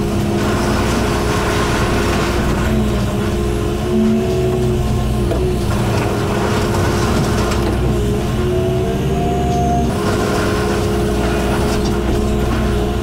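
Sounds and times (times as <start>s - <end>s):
excavator diesel engine: 0.0s - 13.0s
wood breaking and debris falling: 0.4s - 3.3s.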